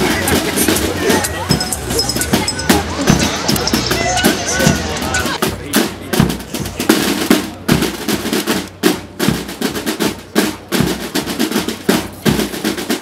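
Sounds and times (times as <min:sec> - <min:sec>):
snare drums marching cadence: 0:00.0 - 0:13.0.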